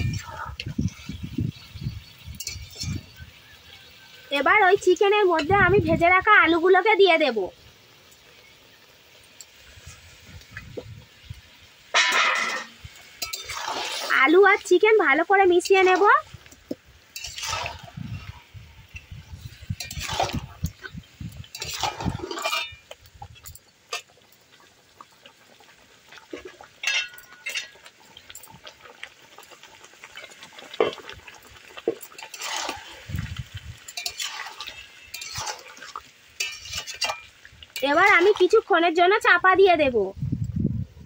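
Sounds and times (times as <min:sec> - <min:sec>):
spatula scraping a cooking pan: 0:00.0 - 0:03.5, 0:12.0 - 0:14.7, 0:15.5 - 0:24.1, 0:26.3 - 0:27.9, 0:30.0 - 0:38.5.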